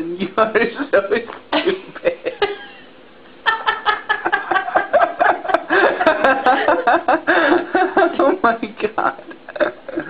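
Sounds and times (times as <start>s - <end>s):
laughter-like vocal calls: 1.8s - 8.0s.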